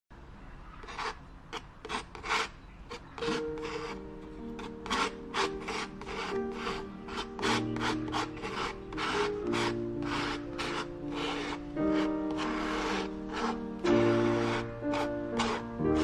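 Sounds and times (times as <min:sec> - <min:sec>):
palette knife scraping paint on canvas: 0:00.8 - 0:16.0
soft music with held notes: 0:03.2 - 0:16.0.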